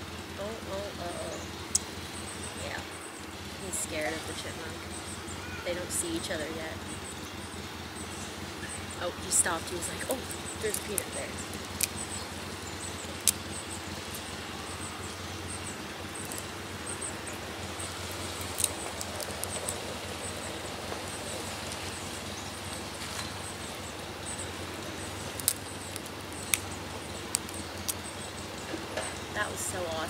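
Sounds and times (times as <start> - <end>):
steady low hum: 0.0 - 30.0
faint high chirps: 0.4 - 29.8
sharp clicks: 9.8 - 21.9, 22.8 - 29.3.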